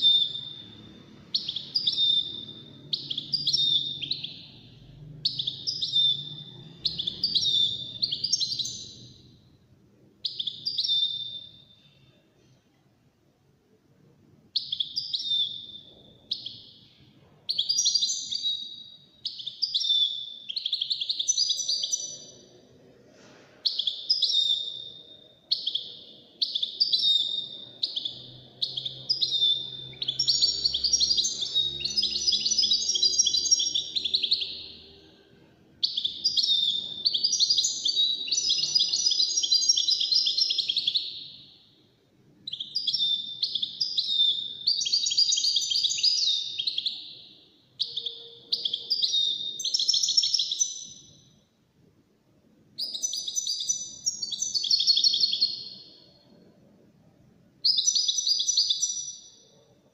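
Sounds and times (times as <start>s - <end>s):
goldfinch singing: 0.0s - 4.6s, 5.2s - 9.2s, 23.7s - 34.8s, 35.8s - 41.4s, 42.5s - 51.1s, 52.8s - 55.8s.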